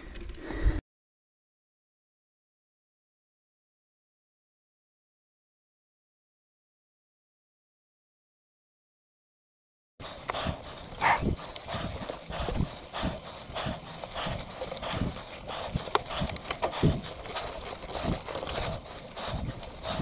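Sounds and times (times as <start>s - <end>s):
crunching and rattling: 10.0s - 20.0s.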